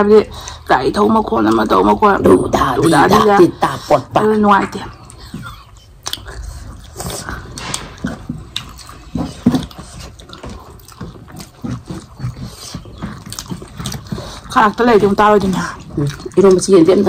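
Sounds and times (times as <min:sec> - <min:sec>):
wet chewing and lip smacks: 0:04.7 - 0:17.0.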